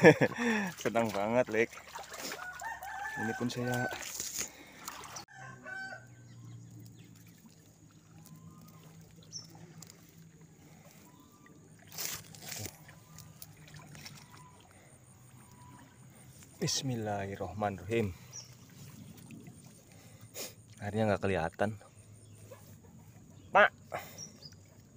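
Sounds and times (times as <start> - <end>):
rooster crowing: 2.2 - 4.2, 5.2 - 6.4.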